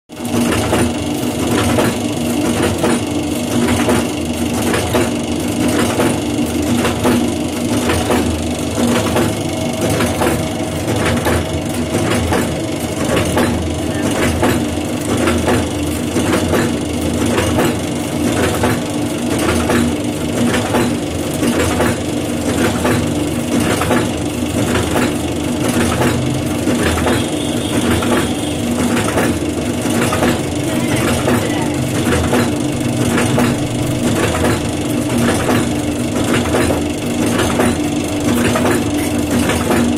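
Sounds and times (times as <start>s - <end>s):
steady motor hum: 0.1s - 39.9s.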